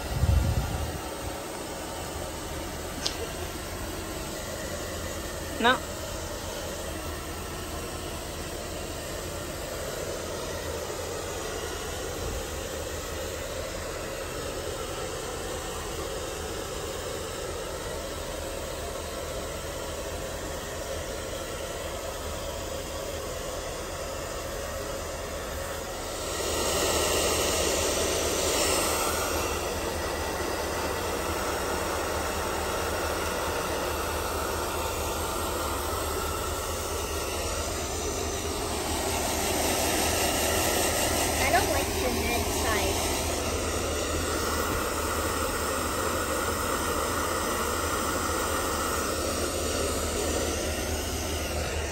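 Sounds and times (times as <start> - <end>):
hair dryer blowing: 0.0 - 51.9.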